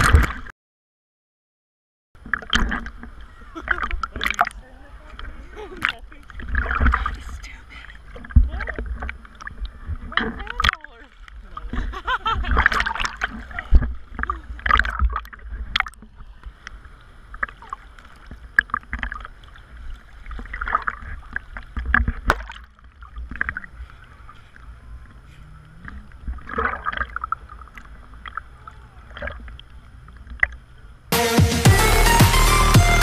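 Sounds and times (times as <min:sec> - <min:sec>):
waves sloshing and splashing: 0:00.0 - 0:00.5, 0:02.2 - 0:31.1
low muffled rumble: 0:02.8 - 0:22.2, 0:23.1 - 0:31.1
electronic music: 0:31.1 - 0:33.0.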